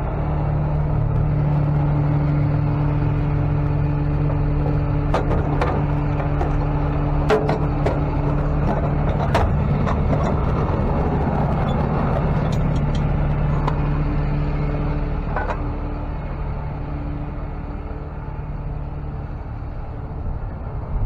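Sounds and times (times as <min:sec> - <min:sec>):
tow truck engine running: 0:00.0 - 0:21.0
sharp clicks and knocks: 0:04.2 - 0:13.9.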